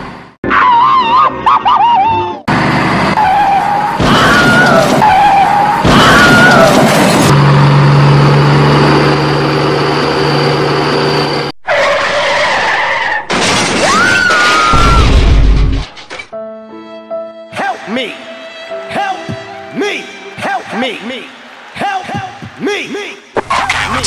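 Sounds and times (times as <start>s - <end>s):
vehicle skidding: 1.0s - 13.2s
engine hum with high whine: 2.0s - 11.6s.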